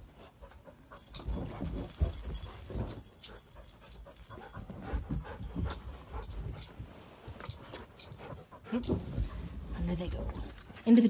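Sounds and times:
jangling toy balls rattle: 0.9s - 6.7s.

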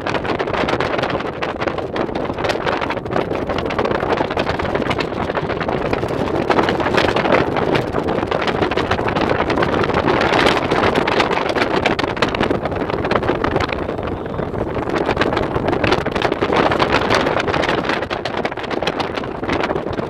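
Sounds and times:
off-road vehicle engine and tyres: 0.0s - 20.0s
vehicle rattling and jolts: 0.0s - 20.0s
wind buffeting microphone: 0.0s - 20.0s.

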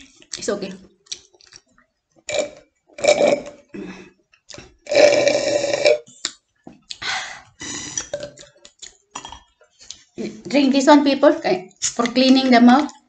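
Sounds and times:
woman burping: 2.3s - 4.2s, 4.9s - 6.1s, 7.6s - 8.4s.

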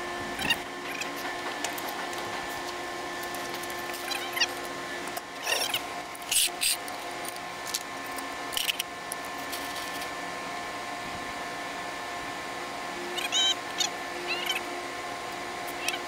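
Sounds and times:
steady multi-pitch hum: 0.0s - 16.0s
gloved hands rustling wires: 1.0s - 5.3s, 6.0s - 10.1s.

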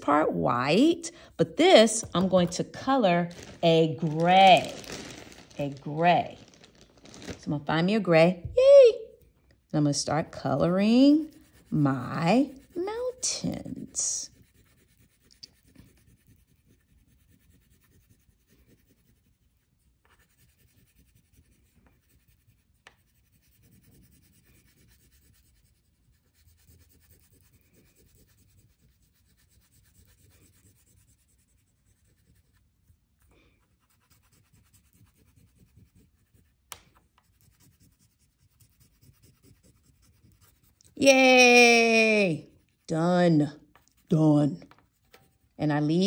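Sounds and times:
crayon scratching on paper: 9.8s - 46.0s.

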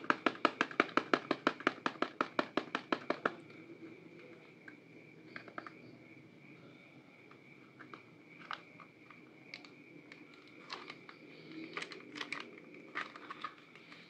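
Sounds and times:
fingernails tapping on cardboard box: 0.0s - 3.4s
box rustling: 10.6s - 14.0s.

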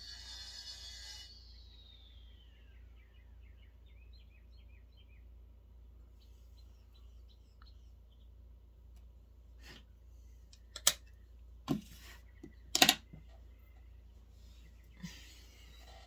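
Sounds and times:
faint falling whine: 0.0s - 4.6s.

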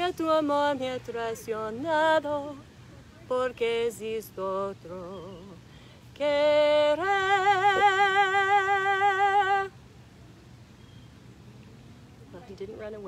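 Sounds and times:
woman singing a cappella: 0.0s - 9.8s.

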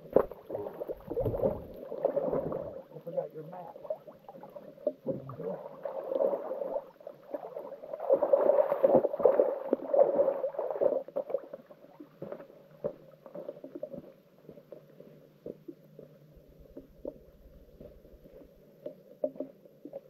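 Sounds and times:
light footsteps: 12.2s - 20.0s.

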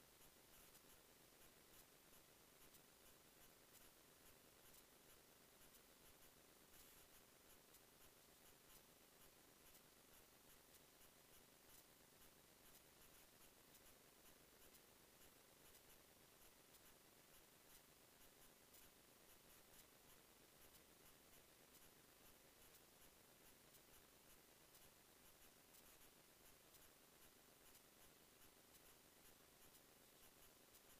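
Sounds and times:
faint hiss with crackling: 0.0s - 30.9s.

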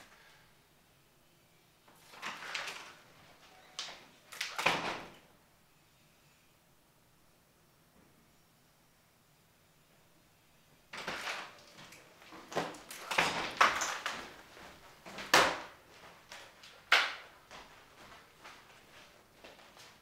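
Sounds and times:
door opening: 2.1s - 5.2s, 11.0s - 14.4s
footsteps on hardwood floor: 11.8s - 16.6s, 17.2s - 20.0s.

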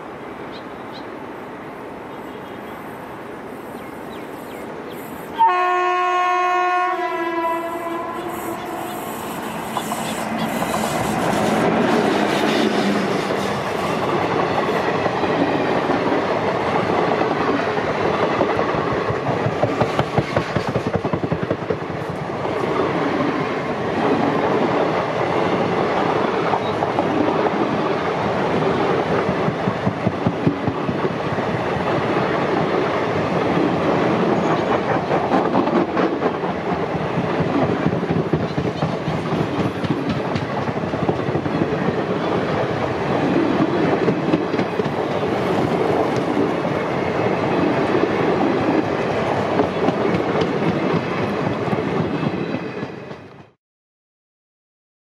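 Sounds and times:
train wheels rumbling on rail: 2.3s - 53.6s
clickety-clack over rail joints: 9.7s - 53.6s.

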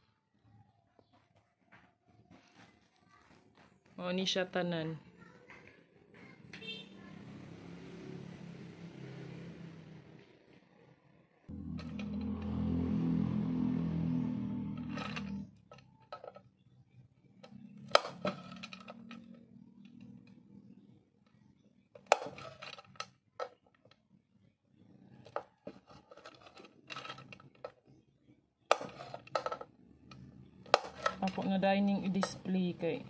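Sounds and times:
background music: 11.5s - 15.6s
wax sticks clicking and knocking: 28.7s - 32.6s.

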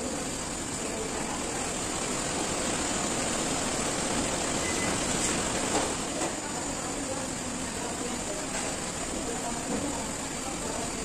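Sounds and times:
steady rushing fan noise: 0.0s - 11.0s.

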